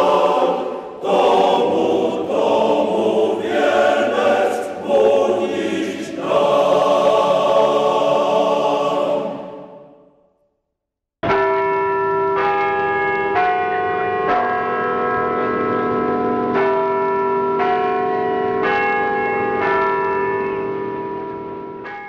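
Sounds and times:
bells ringing: 11.2s - 22.0s.

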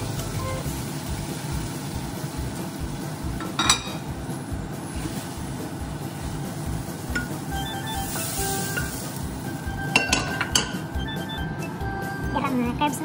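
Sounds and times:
steady low background hum: 0.0s - 13.0s
cookware handling: 3.4s - 4.0s, 9.9s - 10.8s.

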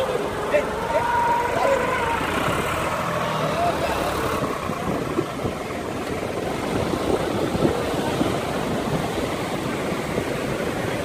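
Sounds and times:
tractor engine running: 0.0s - 11.0s
wind on microphone: 3.8s - 11.0s.

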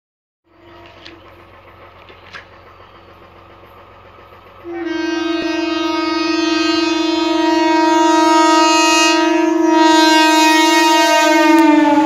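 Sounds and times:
train horn blast: 0.4s - 1.3s, 4.6s - 12.0s.

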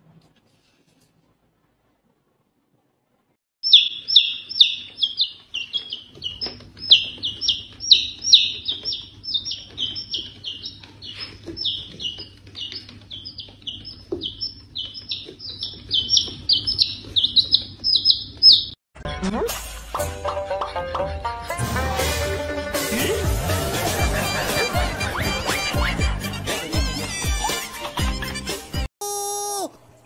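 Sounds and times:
chick peeping: 3.6s - 18.8s.

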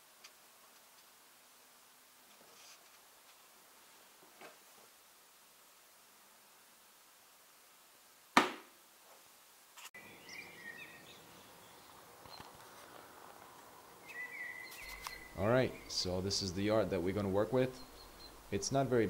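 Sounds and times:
sharp knock: 8.4s - 8.7s
birds chirping: 10.0s - 19.0s.

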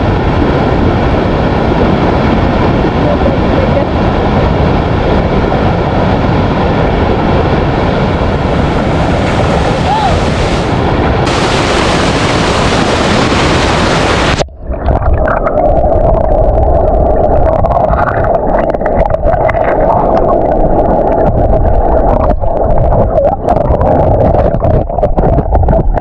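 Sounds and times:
steady hum: 0.0s - 14.6s
muffled underwater churn: 0.0s - 26.0s
stream rushing over rocks: 8.4s - 14.4s.

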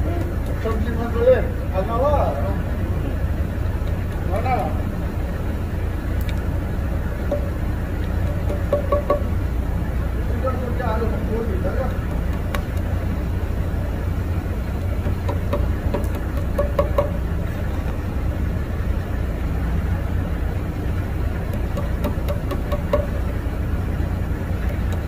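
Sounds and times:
low mechanical rumble: 0.0s - 25.0s
light clicks and knocks: 7.2s - 9.3s, 11.8s - 12.9s, 14.7s - 18.0s, 21.5s - 23.2s, 24.6s - 25.0s.

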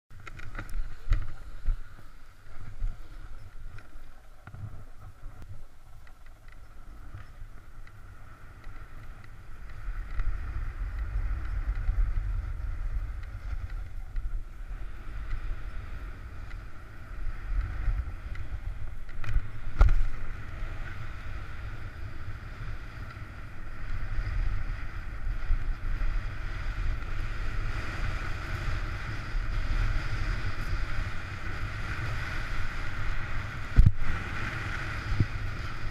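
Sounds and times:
wind buffeting microphone: 0.1s - 35.9s
ski edges scraping snow: 0.4s - 5.4s.

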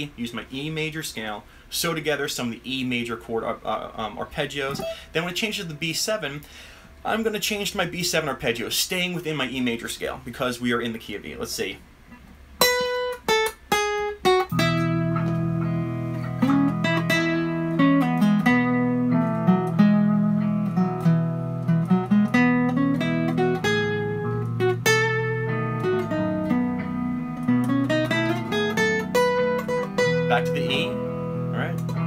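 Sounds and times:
acoustic guitar solo: 4.6s - 5.9s, 12.1s - 32.0s.

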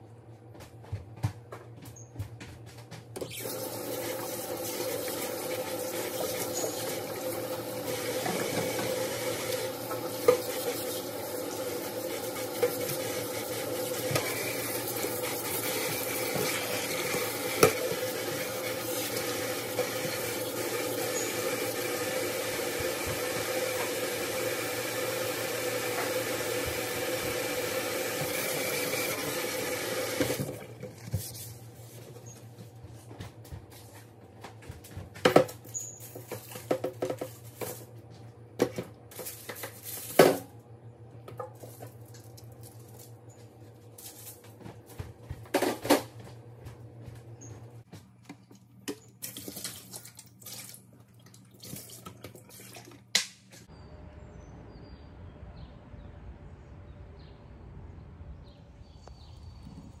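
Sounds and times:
steady low hum: 53.7s - 60.0s.

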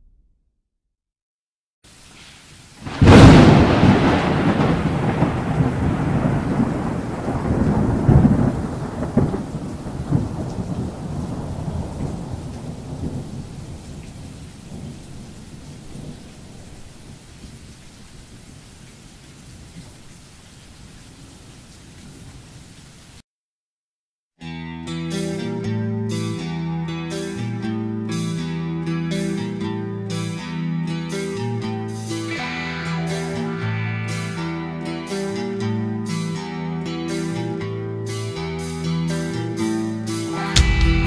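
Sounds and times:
rain hissing: 1.8s - 23.2s
thunder rumbling: 2.8s - 17.5s.

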